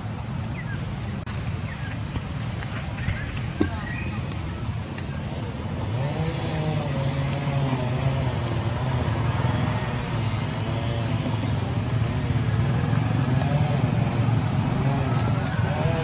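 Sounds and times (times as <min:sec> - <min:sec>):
steady low drone: 0:04.2 - 0:16.0.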